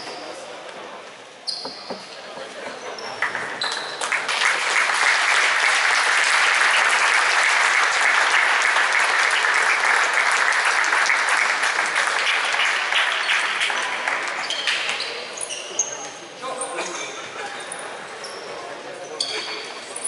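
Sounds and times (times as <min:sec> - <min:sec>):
spectators clapping: 0:03.2 - 0:15.1.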